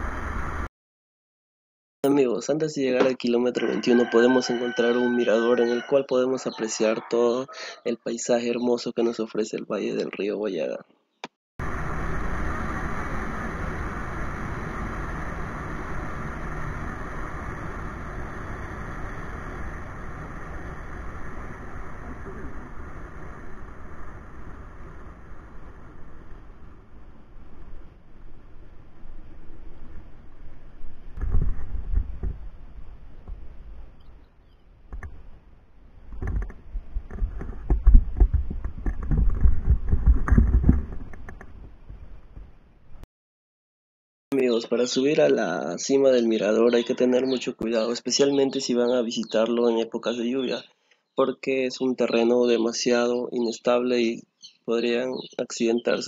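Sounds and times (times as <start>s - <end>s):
wind rushing over microphone: 0.0s - 0.7s, 11.6s - 34.0s, 36.0s - 42.3s.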